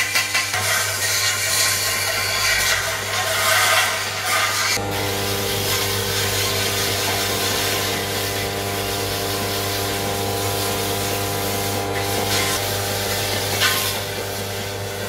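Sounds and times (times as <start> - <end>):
abrasive pad sanding metal: 0.0 - 15.0
lathe motor humming: 4.7 - 13.4.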